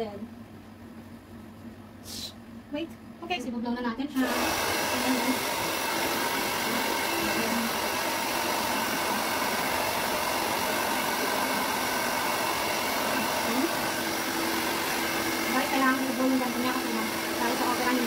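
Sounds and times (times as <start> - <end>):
hair dryer blowing: 4.1 - 18.0.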